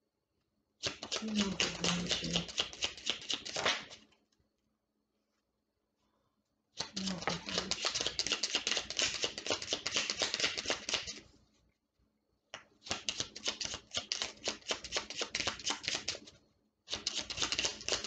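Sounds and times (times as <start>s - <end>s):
cards shuffling: 0.8s - 4.1s, 6.8s - 11.2s, 12.8s - 16.3s, 16.9s - 18.0s
card snap: 0.9s - 4.0s, 6.8s - 11.2s.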